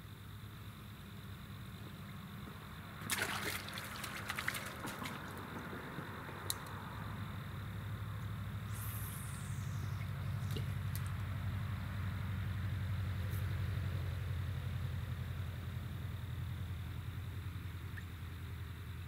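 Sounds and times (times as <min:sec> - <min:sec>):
low engine hum: 0:00.0 - 0:19.0
fish splashing into water: 0:03.0 - 0:05.7.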